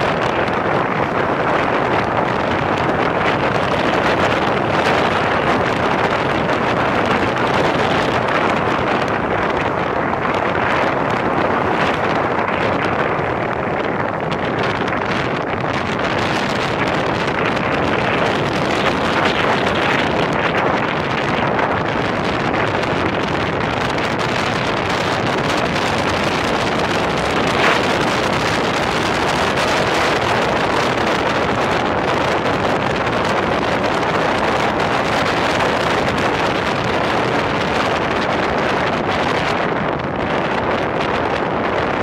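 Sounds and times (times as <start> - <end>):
wind rush on microphone: 0.0 - 42.0.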